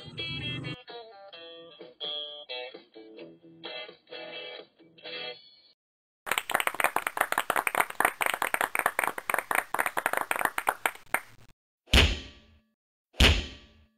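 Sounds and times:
rapid sharp claps: 6.3 - 11.5.

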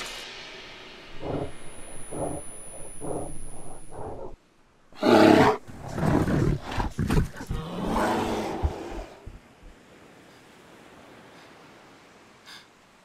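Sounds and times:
bear growling: 1.2 - 4.4, 5.0 - 9.3
bear roaring: 1.2 - 4.4, 5.0 - 9.2.

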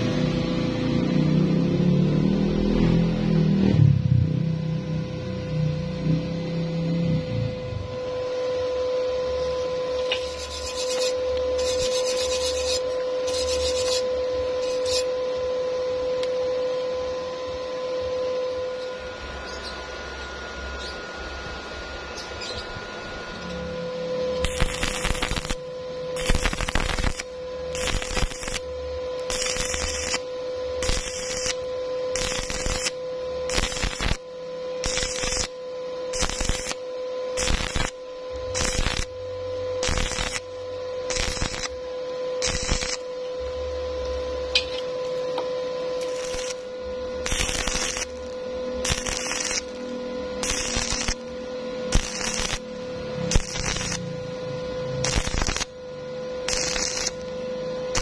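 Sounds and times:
steady hum: 0.0 - 58.0
welding arc crackling: 9.3 - 15.4, 22.2 - 58.0.

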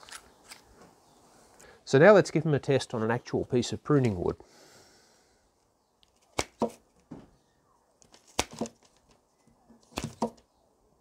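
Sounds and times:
secateurs snipping wood: 6.1 - 6.8.

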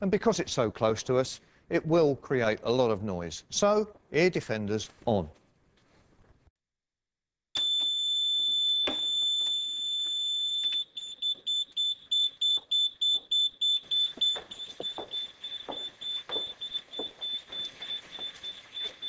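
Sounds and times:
alarm tone and pulsing beeps: 7.6 - 19.0.

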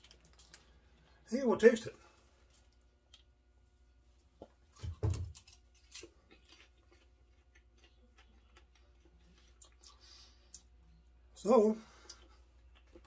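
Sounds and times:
chewing popcorn: 0.0 - 1.2, 4.4 - 11.3, 11.9 - 13.0.

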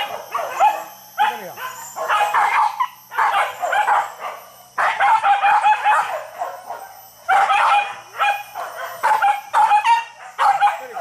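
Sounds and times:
dogs barking and yelping: 0.0 - 11.0.

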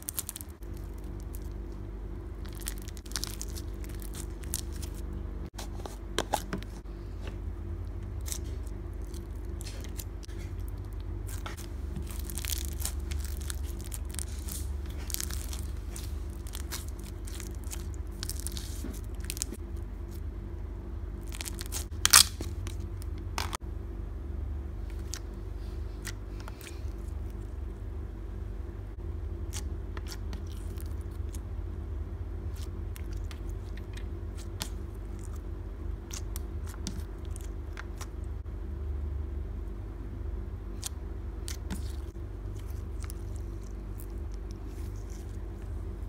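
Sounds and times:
slime bubbles crackling and popping: 0.0 - 1.8, 2.4 - 5.0, 8.2 - 19.6, 21.2 - 23.6, 36.0 - 38.2
steady low hum: 0.0 - 46.0.

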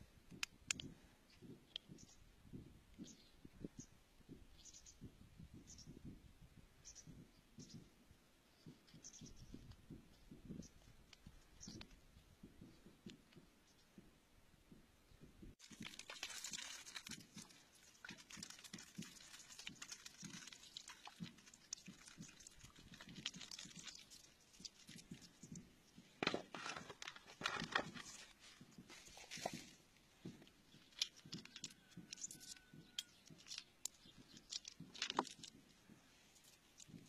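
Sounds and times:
stones clicking and scraping in hand: 0.3 - 2.2, 15.6 - 37.0.

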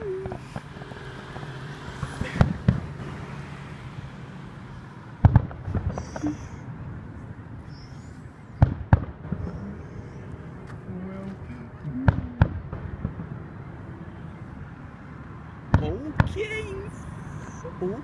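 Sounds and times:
fireworks popping: 0.0 - 3.2, 5.2 - 6.4, 8.6 - 9.8, 11.9 - 13.4
distant fireworks booming: 0.0 - 4.3, 5.2 - 7.0, 8.6 - 10.6, 11.9 - 14.5.

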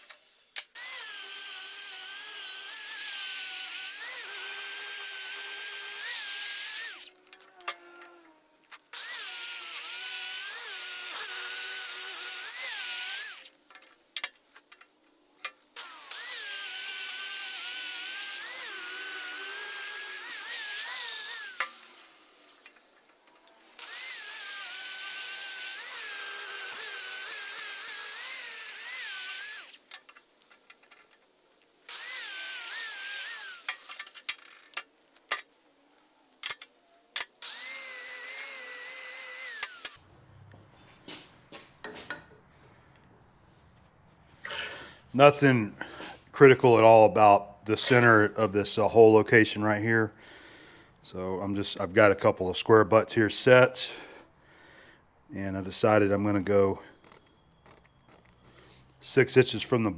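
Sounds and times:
angle grinder grinding steel: 0.0 - 13.6, 15.7 - 30.1, 31.8 - 35.5, 36.5 - 40.0, 55.6 - 59.9.

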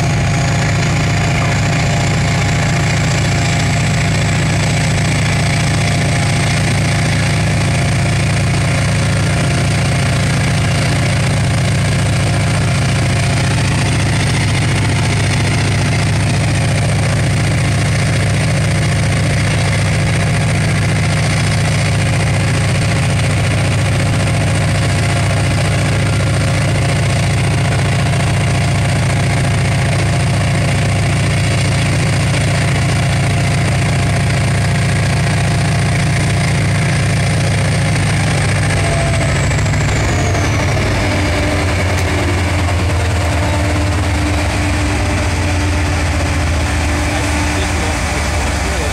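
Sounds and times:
diesel engine idling: 0.0 - 48.9.

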